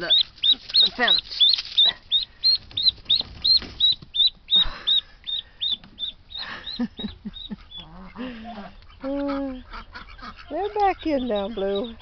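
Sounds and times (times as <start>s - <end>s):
ducklings peeping: 0.0s - 12.0s.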